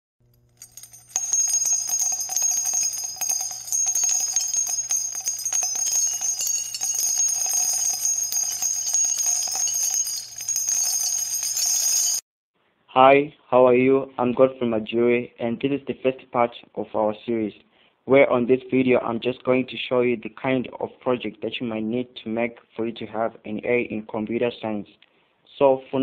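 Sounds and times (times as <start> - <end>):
high bell-like ringing shimmer: 0.6 - 12.2.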